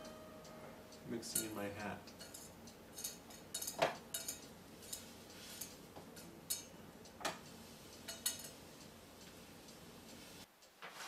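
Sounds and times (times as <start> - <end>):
metal spoon clinking in steel bowl: 2.2 - 6.7, 8.1 - 8.6.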